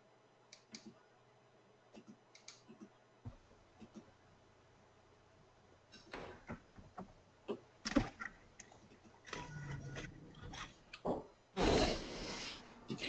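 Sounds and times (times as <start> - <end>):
irregular clicks and knocks: 5.9 - 11.3.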